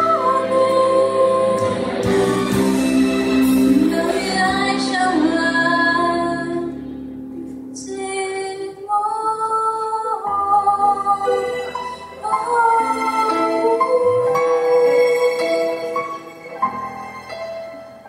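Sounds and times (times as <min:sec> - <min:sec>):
woman singing pop song: 0:03.7 - 0:06.8, 0:07.8 - 0:11.6.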